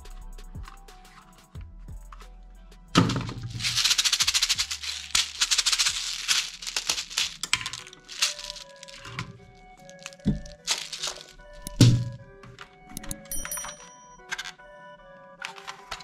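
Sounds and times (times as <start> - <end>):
background music: 0.0 - 16.0
toy full of beads rattling: 3.0 - 12.0.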